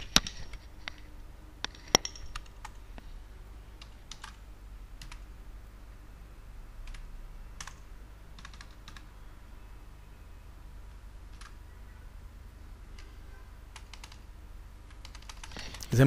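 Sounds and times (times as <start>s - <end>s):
computer keyboard keys clicking: 3.8s - 4.4s, 5.0s - 5.3s, 6.8s - 9.1s, 11.3s - 11.6s, 12.9s - 14.2s, 14.9s - 15.9s.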